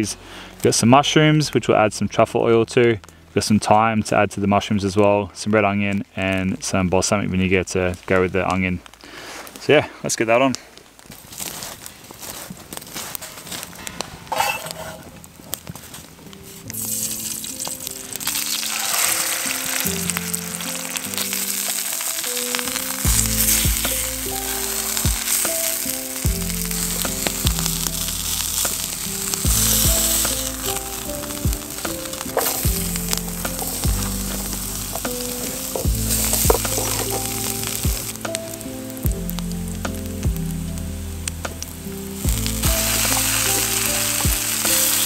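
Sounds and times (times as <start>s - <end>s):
steak sizzling in a skillet: 11.0s - 45.0s
background music with bass line: 22.3s - 45.0s.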